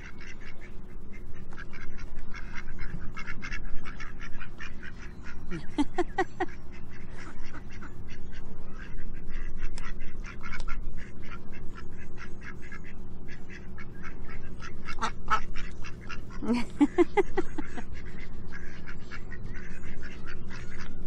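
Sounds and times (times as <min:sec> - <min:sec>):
ducks quacking: 0:00.0 - 0:21.0
duck bills clicking and snapping: 0:09.7 - 0:10.8.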